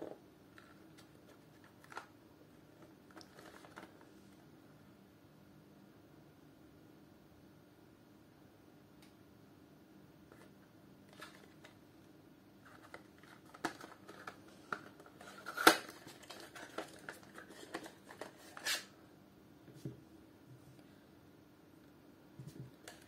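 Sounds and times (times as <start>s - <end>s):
paperboard box rustling: 3.1s - 4.0s, 12.6s - 18.8s
box flap snap: 15.4s - 16.0s.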